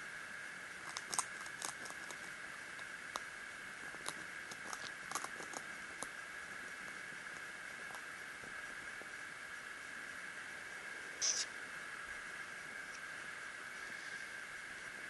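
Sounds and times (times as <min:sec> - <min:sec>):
hamster gnawing food: 0:00.7 - 0:09.2.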